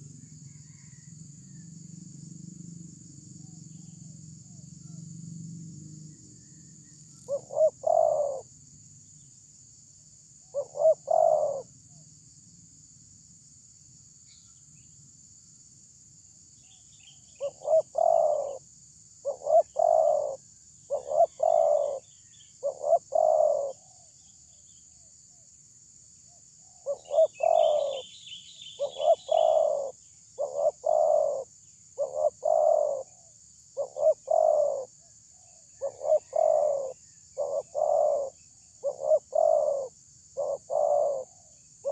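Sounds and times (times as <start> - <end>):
small bird chirping: 6.1 - 8.5, 10.4 - 11.7, 16.6 - 18.6, 19.2 - 25.5, 26.3 - 41.9
dove cooing: 7.2 - 8.5, 10.5 - 11.7, 17.4 - 18.6, 19.2 - 24.1, 26.8 - 28.1, 28.8 - 41.9.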